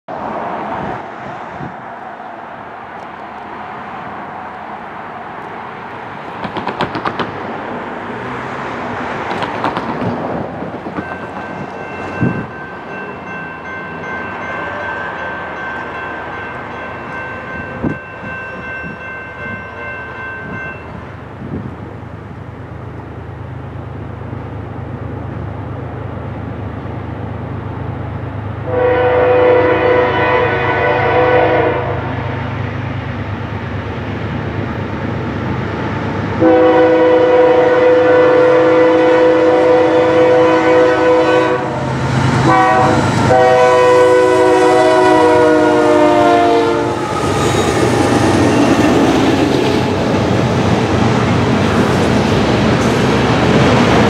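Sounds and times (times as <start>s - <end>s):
locomotive horn chord: 28.6s - 32.1s, 36.4s - 47.9s.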